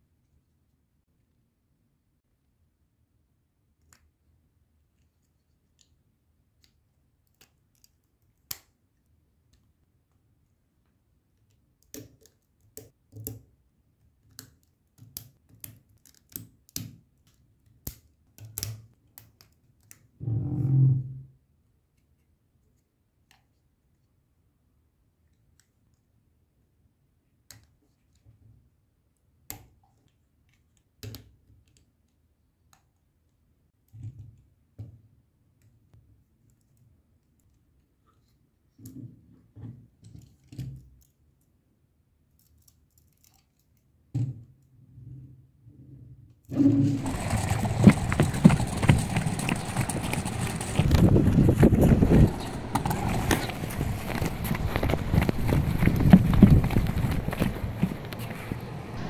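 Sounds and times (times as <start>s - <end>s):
small plastic clicks and knocks: 14.2s - 20.1s.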